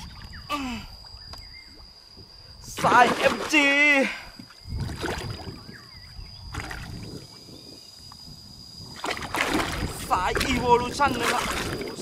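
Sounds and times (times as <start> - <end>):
water sloshing against boat hull: 1.8 - 7.4, 8.9 - 12.0.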